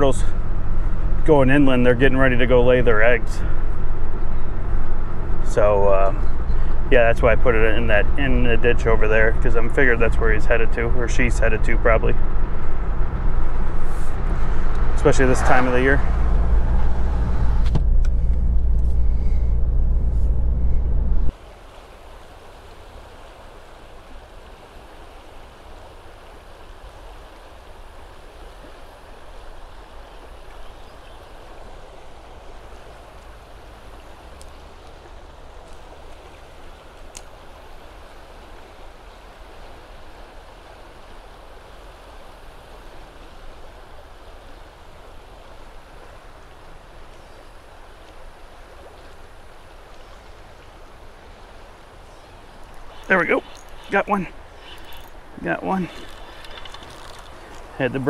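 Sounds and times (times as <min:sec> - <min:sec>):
river water rushing over rapids: 0:21.3 - 0:58.0.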